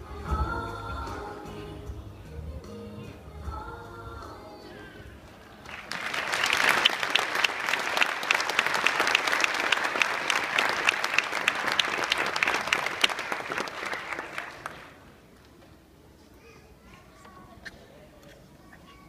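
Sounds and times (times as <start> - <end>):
audience applause: 5.6 - 15.1.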